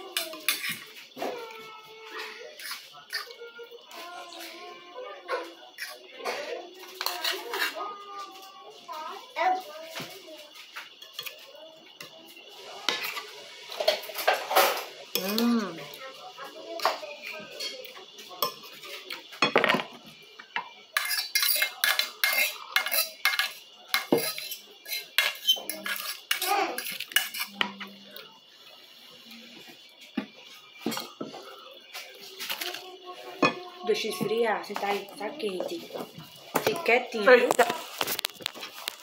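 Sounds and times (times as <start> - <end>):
metal spoon clinking on plate: 21.0 - 27.6.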